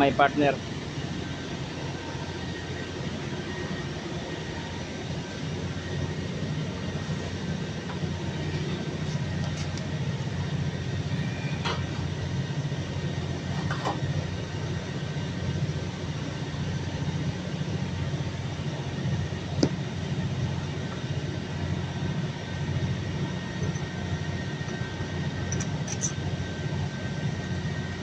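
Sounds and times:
low machine hum: 0.0s - 28.0s.

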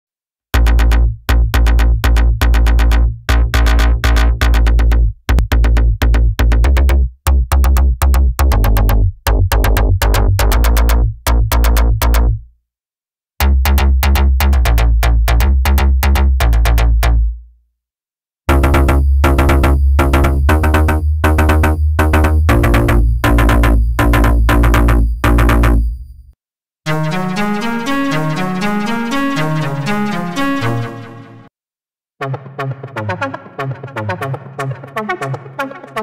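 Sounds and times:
arpeggiated synth bass: 0.5s - 12.4s, 13.4s - 17.3s, 18.5s - 26.3s, 26.9s - 31.5s.

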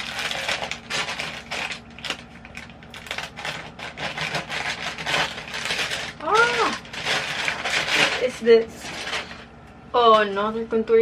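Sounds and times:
plastic bag crinkling and rustling: 0.0s - 9.5s.

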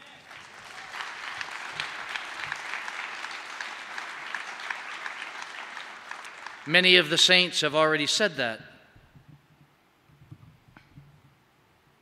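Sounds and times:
audience applause: 0.0s - 7.2s.

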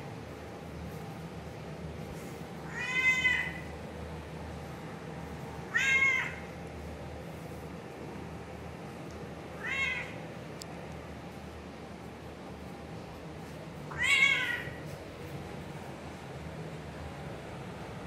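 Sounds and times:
cat meowing: 2.6s - 3.7s, 5.7s - 6.5s, 9.6s - 10.2s, 13.9s - 14.9s.

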